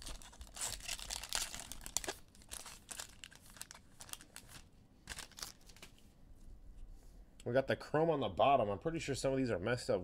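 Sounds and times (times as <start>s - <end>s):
plastic wrapper crinkling: 0.0s - 6.0s.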